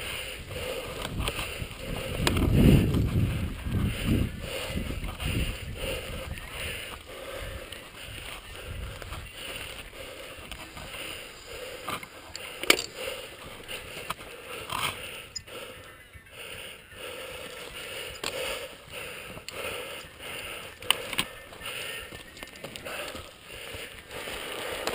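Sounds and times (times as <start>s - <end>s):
bike rattling: 0.0s - 24.9s
tyres crunching on dirt: 17.4s - 24.9s.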